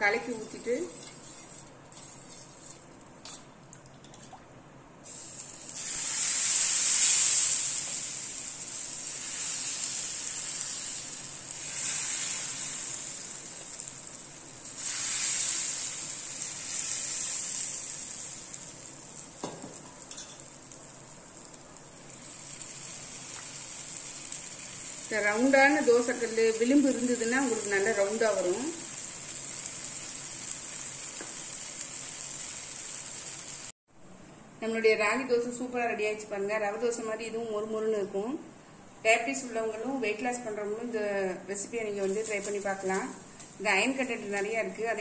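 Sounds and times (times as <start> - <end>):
batter sizzling on griddle: 0.0 - 3.4, 5.0 - 33.8, 41.6 - 45.0.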